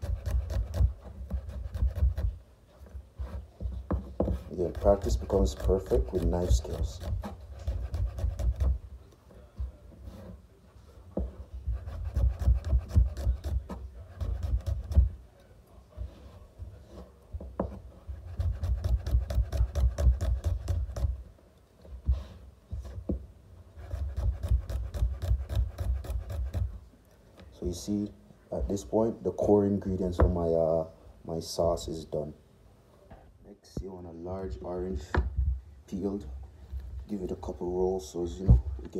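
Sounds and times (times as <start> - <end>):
knife chopping on cutting board: 11.2 - 15.2, 17.6 - 21.2.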